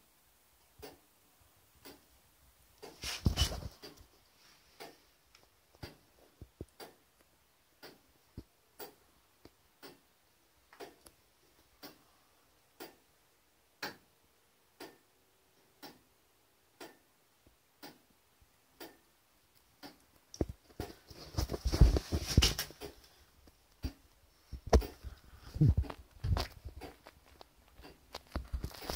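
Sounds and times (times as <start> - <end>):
clock ticking: 1.8 - 2.1, 4.8 - 21.1, 22.5 - 28.9
knocking and rustling: 2.8 - 4.0, 20.4 - 23.0.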